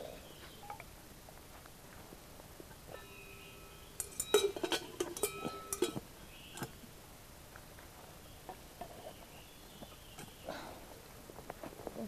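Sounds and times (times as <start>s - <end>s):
steady ringing tone: 2.9s - 6.0s
hard objects clinking: 3.0s - 6.0s.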